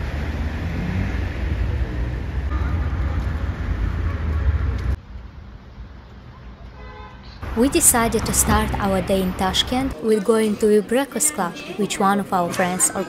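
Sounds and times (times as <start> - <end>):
road traffic rumble: 0.0 - 10.0
quiet street ambience: 0.0 - 13.0.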